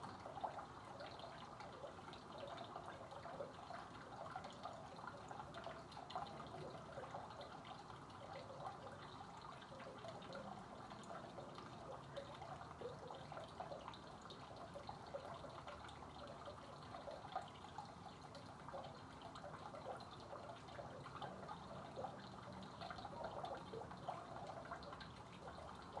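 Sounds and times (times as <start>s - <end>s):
water trickling into pool: 0.0s - 26.0s.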